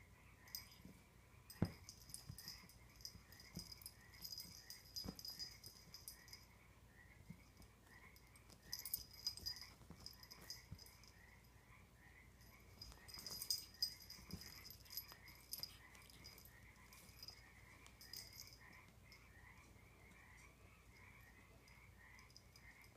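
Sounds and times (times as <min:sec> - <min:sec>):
faint steady chirping: 0:00.0 - 0:22.9
cloth and feather toy rustling: 0:00.5 - 0:06.4, 0:08.4 - 0:11.2, 0:12.5 - 0:18.7.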